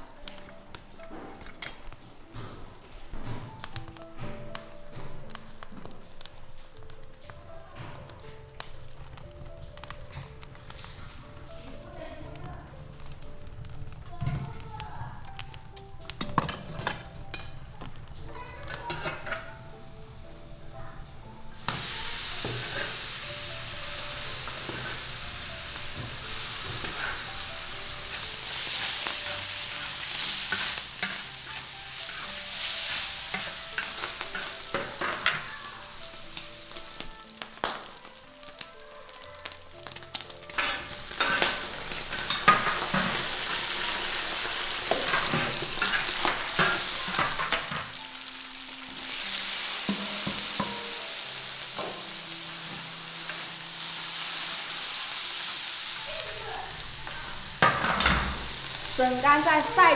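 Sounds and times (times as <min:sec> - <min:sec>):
food sizzling in hot oil: 0:02.7 - 0:59.9
spatula scraping a pan: 0:22.4 - 0:23.2, 0:24.4 - 0:35.7, 0:39.9 - 0:47.8.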